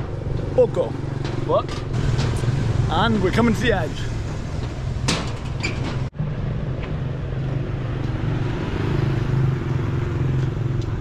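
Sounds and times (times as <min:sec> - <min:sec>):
motorbike traffic engine drone: 0:00.0 - 0:11.0.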